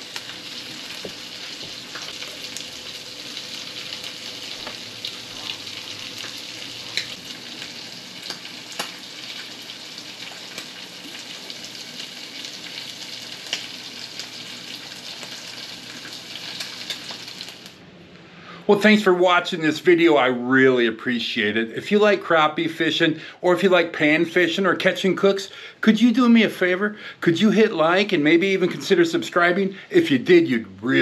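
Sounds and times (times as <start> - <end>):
oil popping and crackling: 0.0 - 17.8
oil sizzling in a pan: 0.0 - 17.8.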